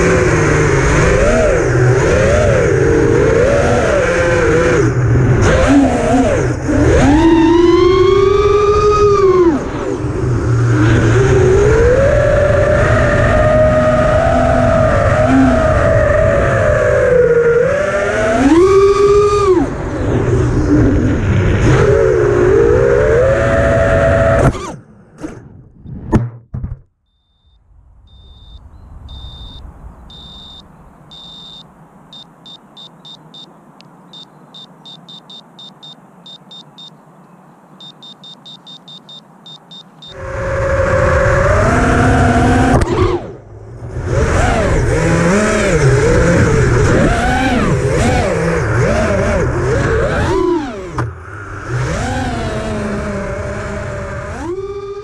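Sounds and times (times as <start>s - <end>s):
quadcopter motors whining: 0.0s - 21.0s, 44.2s - 55.0s
high beeps: 27.1s - 37.0s, 37.8s - 40.2s.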